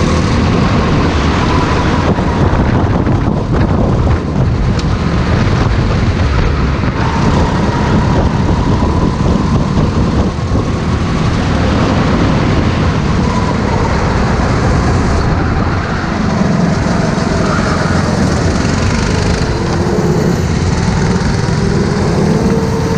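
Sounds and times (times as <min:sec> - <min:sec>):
kart engine running: 0:00.0 - 0:22.9
other kart engines: 0:00.0 - 0:22.9.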